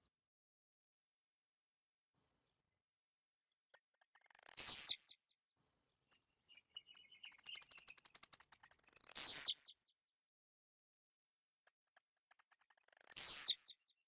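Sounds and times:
bird song with buzzy note: 4.2 - 10.1, 12.7 - 14.0.

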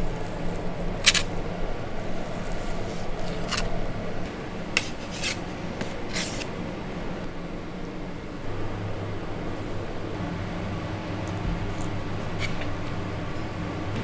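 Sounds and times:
steady low hum: 0.0 - 14.0
knife scraping fish: 4.8 - 6.5.

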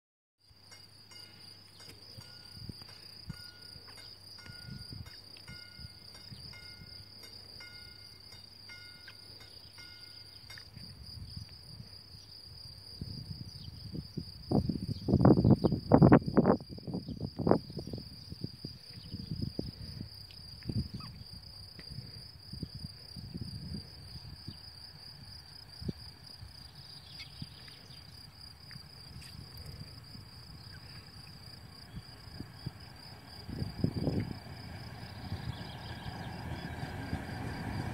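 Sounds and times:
insects chirring: 0.5 - 37.9
low rumbling buffets: 29.4 - 37.9.

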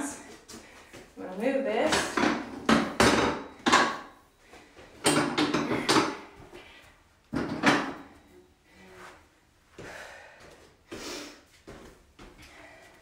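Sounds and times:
gym equipment knocks and clunks: 1.8 - 4.2, 5.0 - 6.4, 7.3 - 8.2.

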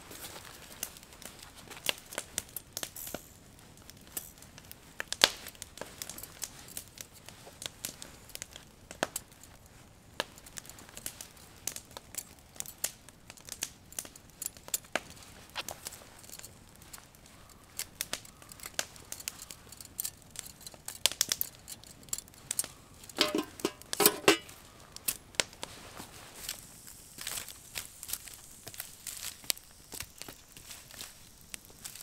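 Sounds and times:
crinkling rustles: 0.0 - 32.0
wire grill basket clicking: 18.0 - 24.6.

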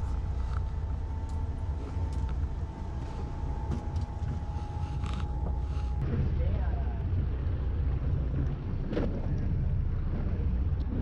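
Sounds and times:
thin steady whine: 0.0 - 6.0
boat engine idling: 0.0 - 11.0.

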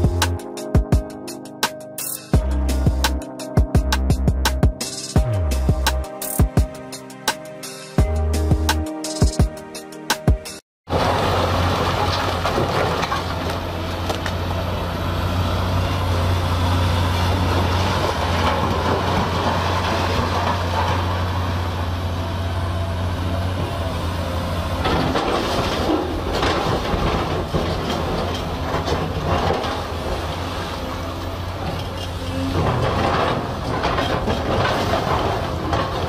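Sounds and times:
bucket scraping through rock: 10.9 - 14.0, 24.8 - 36.0
excavator engine droning: 10.9 - 36.0
rocks clattering against steel bucket: 11.2 - 14.4, 24.8 - 30.9, 31.6 - 36.0.

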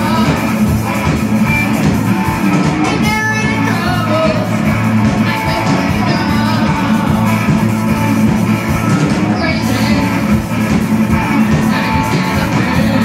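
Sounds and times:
person singing: 0.0 - 0.7, 2.8 - 8.1, 9.1 - 10.4, 11.1 - 13.0
bass: 0.0 - 13.0
drums: 0.0 - 13.0
electric guitars: 0.0 - 13.0.

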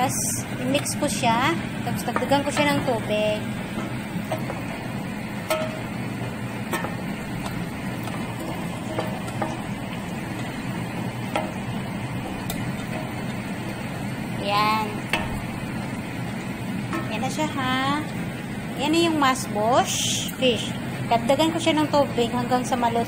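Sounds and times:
utensil scraping metal pot: 0.0 - 17.6
cooking sizzle: 0.0 - 23.0
steady low hum: 0.0 - 23.0.

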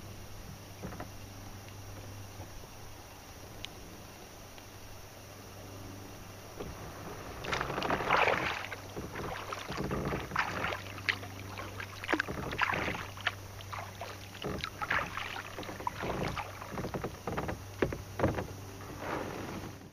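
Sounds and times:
water trickling: 6.3 - 18.7
paddle splashing in water: 6.5 - 19.8.

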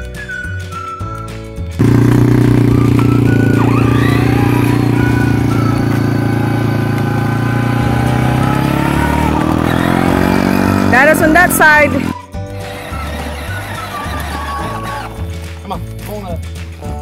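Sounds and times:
small engine droning: 1.8 - 15.1.

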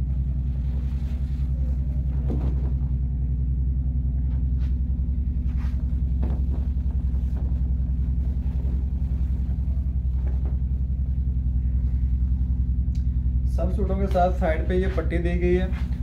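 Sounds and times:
low hum with buzzing flutter: 0.0 - 16.0
cloth rustling: 5.4 - 10.9.

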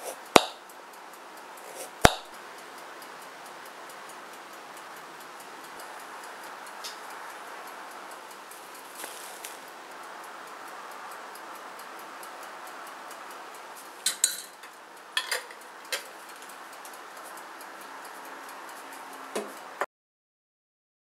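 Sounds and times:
faint hiss: 0.0 - 19.8
sharp clicks and light clinks: 13.5 - 19.1.

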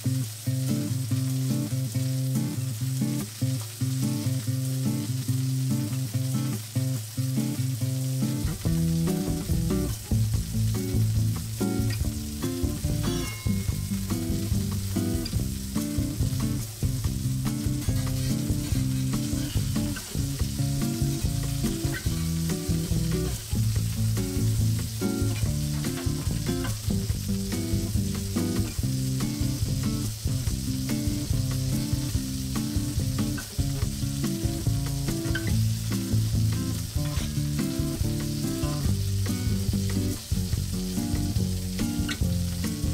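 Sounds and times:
steak sizzling in a frying pan: 0.0 - 42.9.

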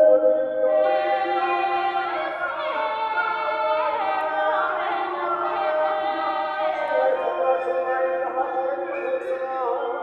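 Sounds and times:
layered choir-like singing voices: 0.0 - 10.0.

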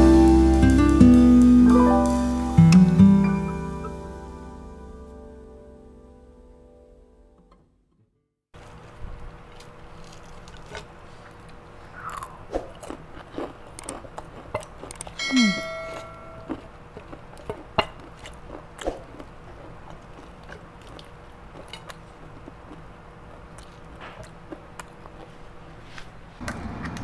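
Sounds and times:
fried chicken crust crunching: 8.6 - 27.0
ringing sound effect with falling sweep: 15.2 - 16.5.

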